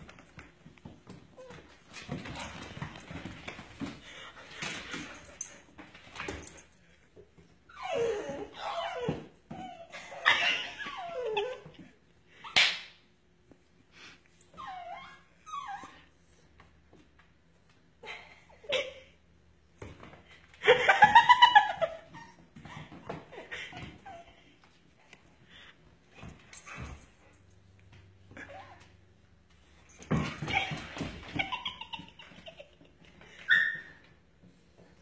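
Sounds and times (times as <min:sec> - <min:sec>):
dogs whining and yipping: 0:07.6 - 0:11.8, 0:14.5 - 0:16.4, 0:33.2 - 0:34.2.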